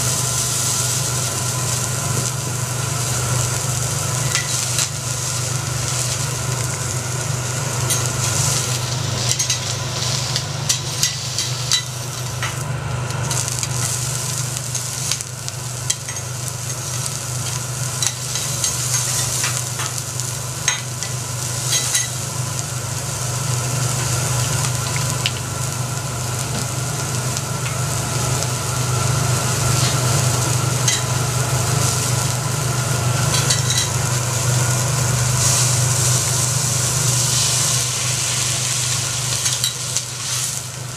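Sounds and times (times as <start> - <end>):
food sizzling on a griddle: 0.0 - 40.9
steady low hum: 0.0 - 40.9
metal tools clicking on griddle: 9.3 - 9.7, 33.3 - 34.0.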